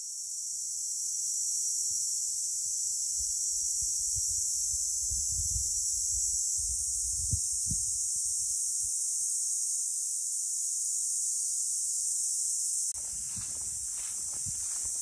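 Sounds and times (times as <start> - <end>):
insects buzzing: 0.0 - 15.0
wind bumps on microphone: 3.8 - 8.6, 13.0 - 15.0.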